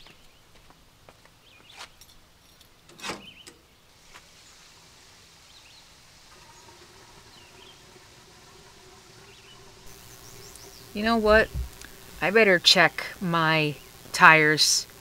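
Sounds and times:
small birds chirping: 0.0s - 2.1s, 9.3s - 12.9s
insect buzzing faintly: 4.0s - 15.0s.

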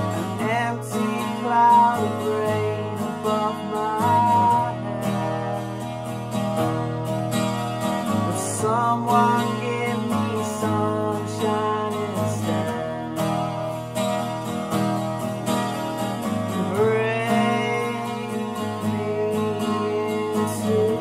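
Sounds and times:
man singing: 0.0s - 6.4s, 8.1s - 13.6s, 16.3s - 21.0s
acoustic guitar strumming: 0.0s - 21.0s.

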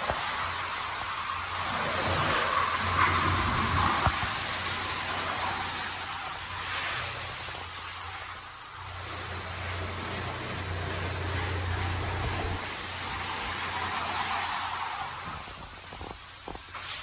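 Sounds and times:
water hissing: 0.0s - 17.0s
machine humming: 8.8s - 14.0s.

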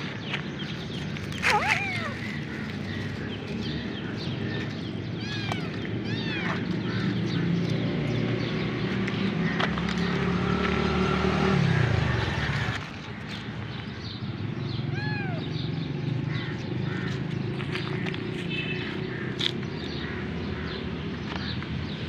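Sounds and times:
vehicle engine running: 0.0s - 21.6s
kitten mewing: 1.4s - 2.3s, 5.2s - 6.9s, 14.9s - 15.5s.

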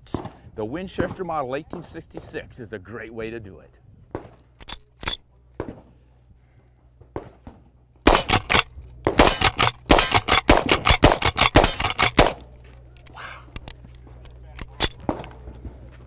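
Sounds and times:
rifle lever action clicks: 4.6s - 5.2s, 8.1s - 12.4s
rifle shots: 8.1s - 12.5s.

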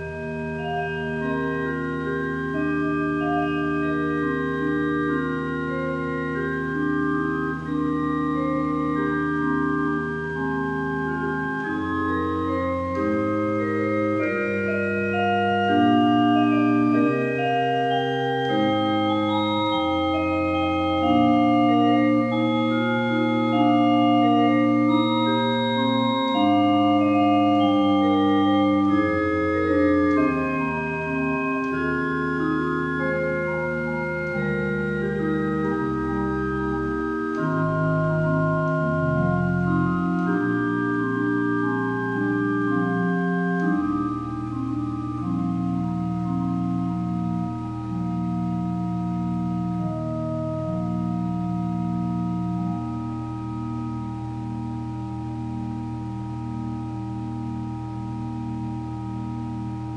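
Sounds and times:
pipe organ playing chords: 0.0s - 59.9s.

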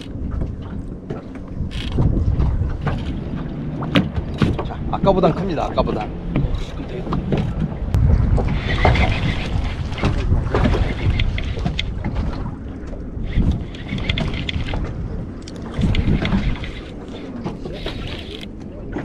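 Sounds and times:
wind buffeting microphone: 0.0s - 19.0s
fishing reel clicking whirr: 1.7s - 2.0s, 13.2s - 14.8s, 15.4s - 18.5s.

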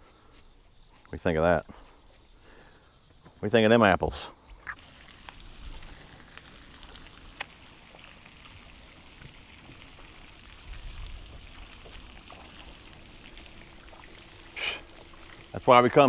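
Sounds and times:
wind rumble on microphone: 10.6s - 12.0s.

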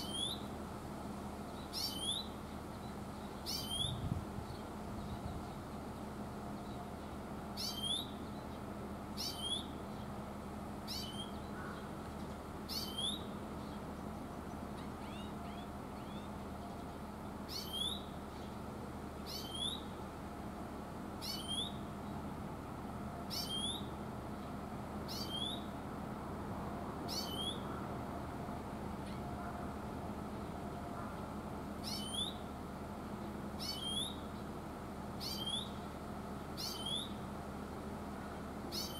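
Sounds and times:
greenfinch calling: 0.0s - 0.5s, 1.5s - 4.1s, 7.6s - 8.5s, 9.2s - 9.8s, 10.9s - 12.0s, 12.7s - 13.8s, 14.5s - 16.4s, 17.5s - 18.4s, 19.2s - 19.9s, 21.2s - 21.8s, 23.3s - 23.9s, 25.0s - 25.7s, 27.1s - 27.8s, 31.8s - 32.5s, 33.6s - 34.3s, 35.2s - 35.8s, 36.6s - 37.2s, 38.7s - 38.9s.

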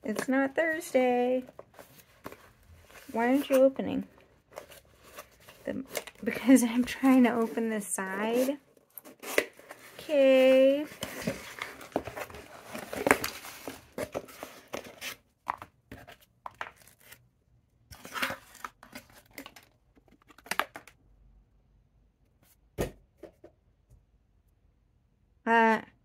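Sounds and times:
packaging rustling and crinkling: 0.0s - 17.2s
cardboard box tearing: 8.3s - 15.2s.

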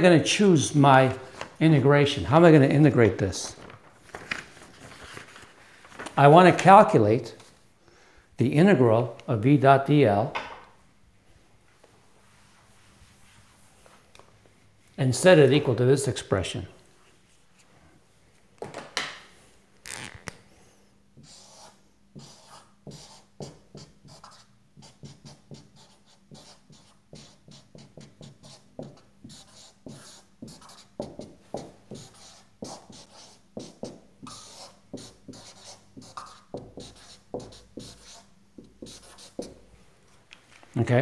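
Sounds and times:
marker writing on whiteboard: 21.2s - 39.6s.

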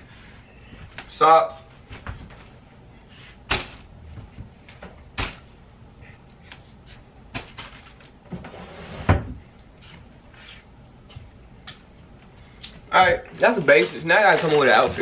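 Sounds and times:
clothes rustling: 13.3s - 15.0s.

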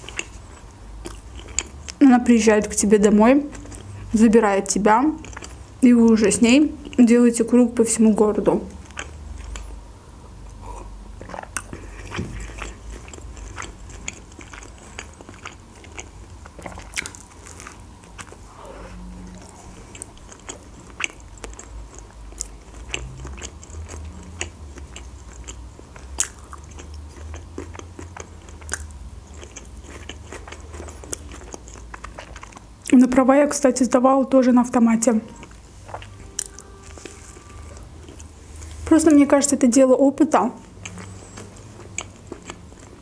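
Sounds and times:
person chewing a burger: 0.0s - 2.0s, 3.5s - 4.1s, 5.2s - 5.7s, 8.7s - 9.8s, 10.5s - 32.9s, 35.3s - 38.9s, 40.6s - 43.0s.

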